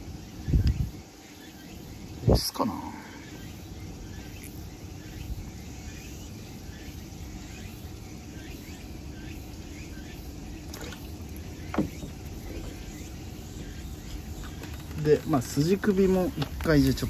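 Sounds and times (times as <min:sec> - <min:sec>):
hand stirring water: 0:10.6 - 0:13.0.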